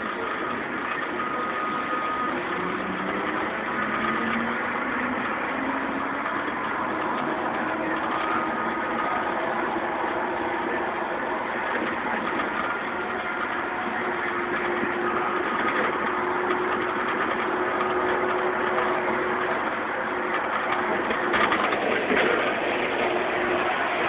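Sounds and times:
bus engine and road noise: 0:00.0 - 0:24.0
faint whine: 0:00.0 - 0:24.0
rattle: 0:14.4 - 0:24.0.

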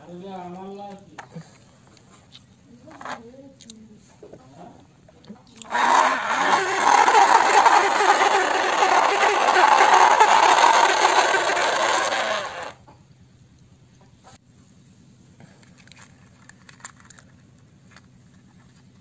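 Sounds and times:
toy excavator engine noise: 0:05.6 - 0:12.8.

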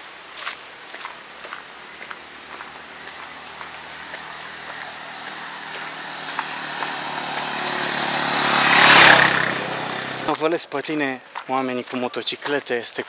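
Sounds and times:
motorcycle engine passing: 0:01.5 - 0:10.4.

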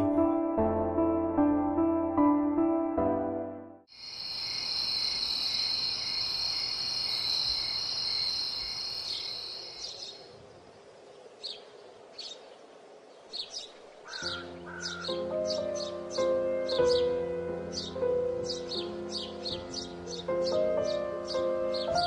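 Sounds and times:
soft piano music: 0:00.0 - 0:03.9, 0:14.1 - 0:22.0
bird chirps: 0:04.7 - 0:12.6.

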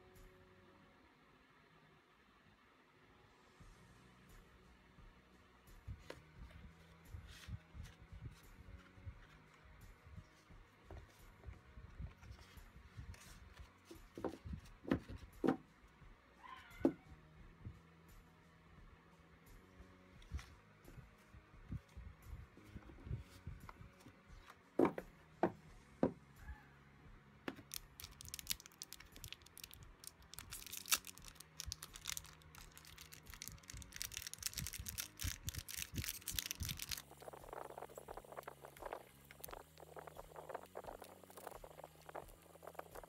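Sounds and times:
hands handling paper and card: 0:06.0 - 0:09.6, 0:10.2 - 0:15.6, 0:27.5 - 0:43.0
plastic bag crinkling: 0:27.6 - 0:43.0.

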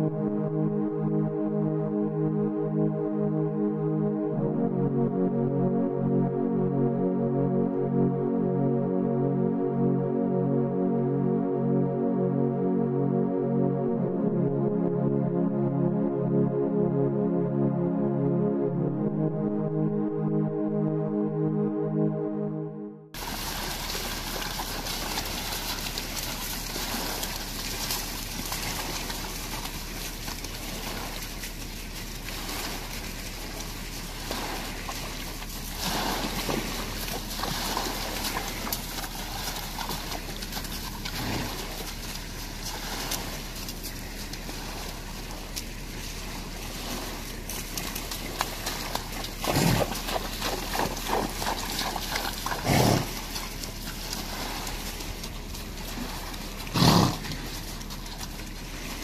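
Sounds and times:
low hum: 0:00.0 - 0:35.7
hooves splashing in shallow water: 0:23.2 - 0:59.0.

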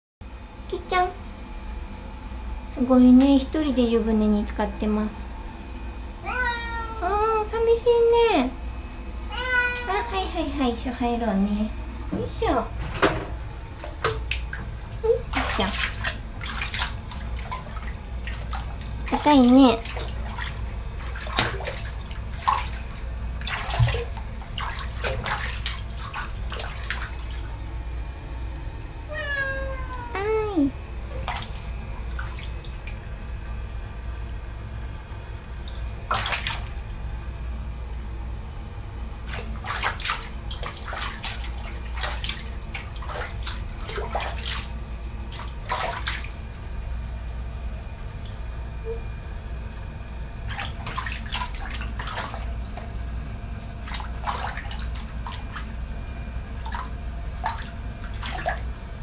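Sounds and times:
cat meowing: 0:06.2 - 0:07.1, 0:09.3 - 0:10.3, 0:29.1 - 0:30.7
bathwater sloshing and splashing: 0:11.8 - 0:28.3, 0:30.8 - 0:34.1, 0:35.2 - 0:37.9, 0:39.1 - 0:49.2, 0:50.0 - 0:59.0.

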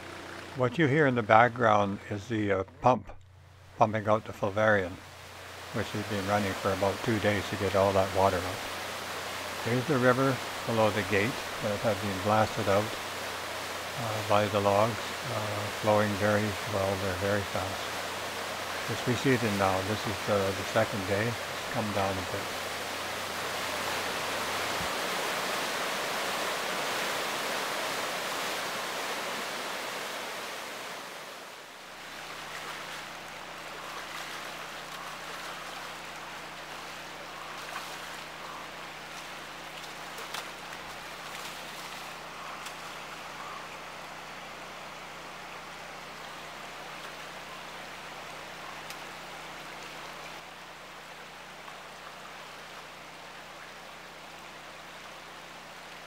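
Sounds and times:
steady low hum: 0:00.0 - 0:25.2
shallow water washing: 0:00.0 - 0:56.0
river rushing over rapids: 0:04.8 - 0:56.0
fish splashing: 0:31.9 - 0:43.2.

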